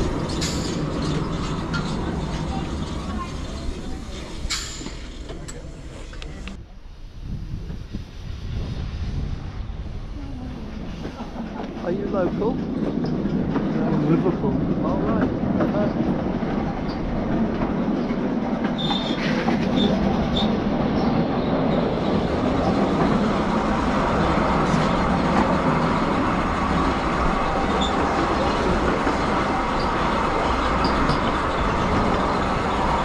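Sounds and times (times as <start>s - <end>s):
train wheels rumbling on rail: 0.0s - 33.0s
short high wheel squeaks: 18.8s - 20.5s.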